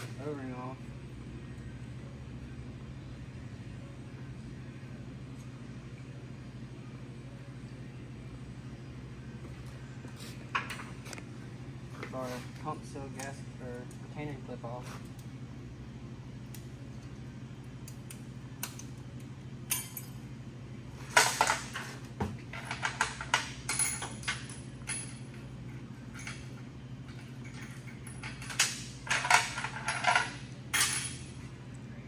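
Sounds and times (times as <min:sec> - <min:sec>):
metal parts clinking: 0:27.1 - 0:31.3.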